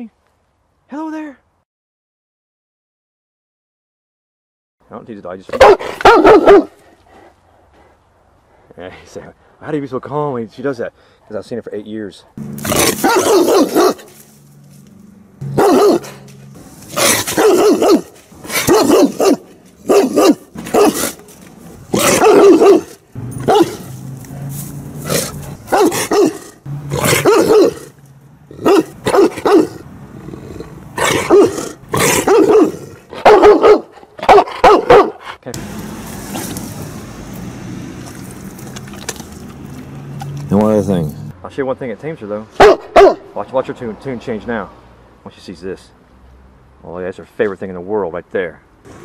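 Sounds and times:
dog barking aggressively: 5.5s - 6.8s, 12.4s - 14.3s, 15.4s - 21.3s, 21.9s - 24.1s, 25.0s - 29.8s, 30.9s - 35.4s, 42.6s - 43.3s.

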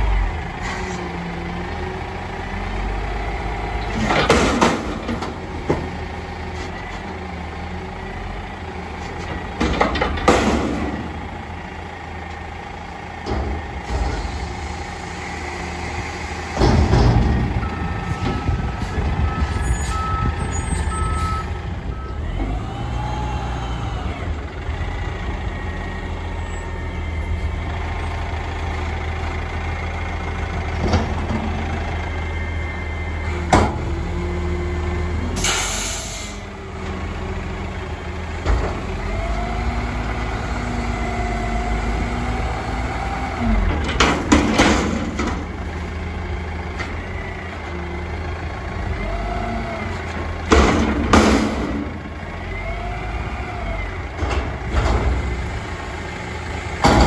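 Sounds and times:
garbage truck engine running: 0.0s - 57.0s
reversing alarm beeps: 17.6s - 22.3s
air brake hiss: 35.4s - 36.4s.

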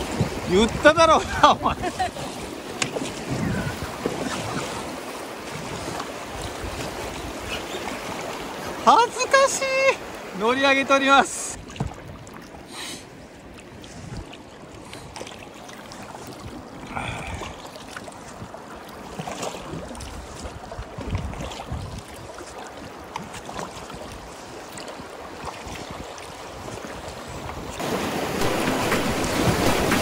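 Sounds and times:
paddle strokes in water: 0.0s - 30.0s
river water rushing and splashing: 0.0s - 30.0s.

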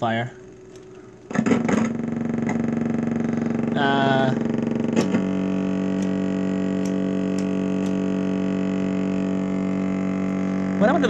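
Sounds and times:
buzzy synthesizer drone: 0.0s - 11.0s
click: 6.0s - 8.0s.

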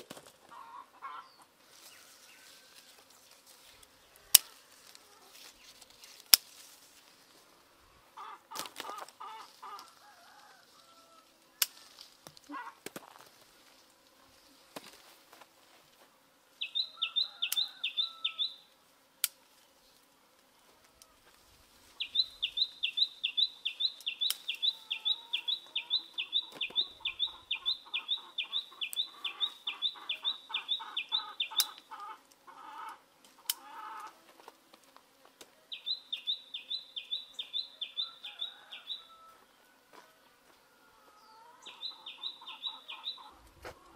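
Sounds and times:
lower pulsed bird calls: 22.0s - 31.8s.

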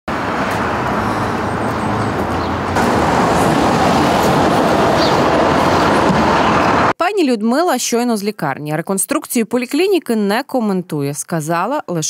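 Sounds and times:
street traffic noise: 0.1s - 7.0s.

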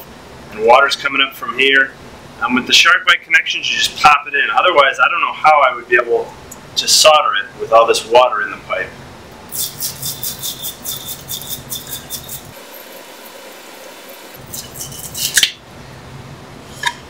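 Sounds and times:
tool scraping copper pipe: 9.5s - 13.4s, 14.4s - 15.6s.

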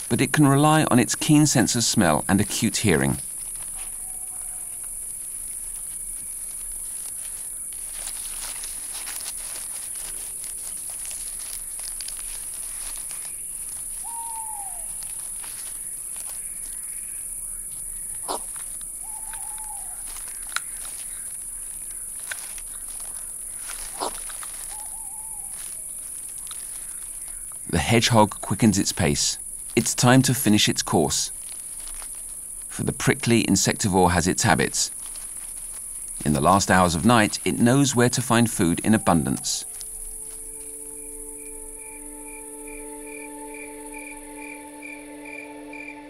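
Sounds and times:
insect chorus: 0.0s - 46.0s
rustle of dry leaf litter: 1.9s - 44.3s
hedgehog snuffling: 2.3s - 17.0s, 18.2s - 43.0s
short animal calls: 3.7s - 4.8s, 13.9s - 15.3s, 18.2s - 21.3s, 23.5s - 26.0s.

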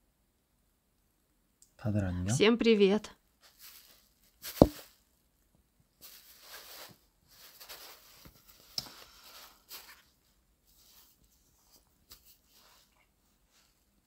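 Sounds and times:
soft rustling: 3.4s - 5.2s, 5.8s - 14.0s.

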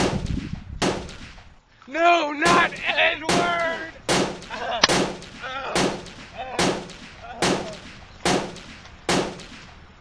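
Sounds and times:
pistol shots: 4.1s - 9.6s.

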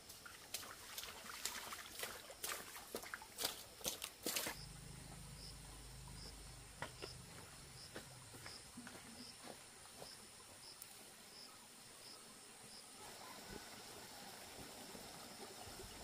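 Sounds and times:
insect chirping pulses: 4.1s - 12.9s
steady high hum: 4.3s - 9.5s
low rumble: 4.4s - 8.9s.

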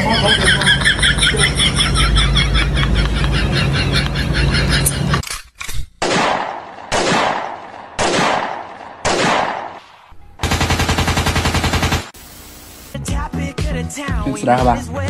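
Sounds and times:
single gunshots: 6.0s - 12.2s
machine-gun burst: 10.4s - 12.2s
static hiss: 12.1s - 13.0s.

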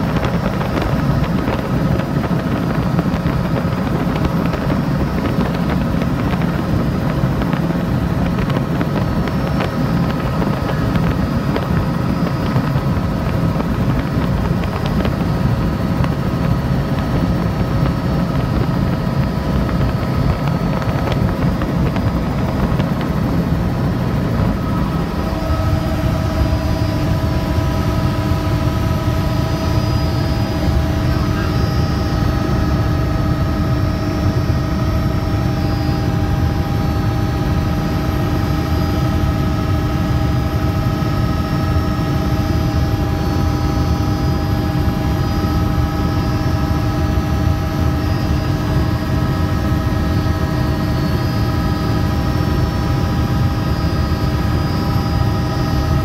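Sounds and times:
helicopter engine and rotor: 0.0s - 56.0s
whining tones: 8.3s - 38.1s.

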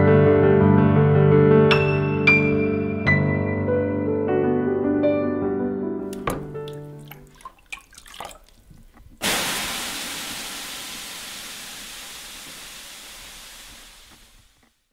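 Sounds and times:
steam hissing: 9.2s - 14.8s.

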